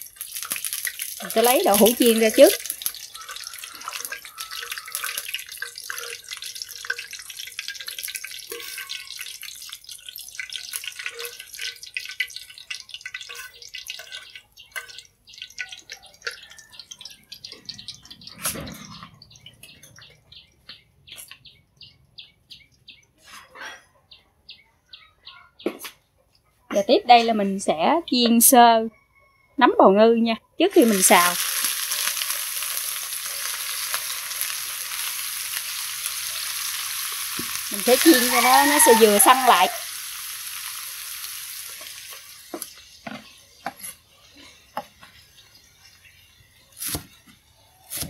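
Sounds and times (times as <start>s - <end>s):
hot oil sizzling in a wok: 0.0s - 18.6s, 30.7s - 47.0s.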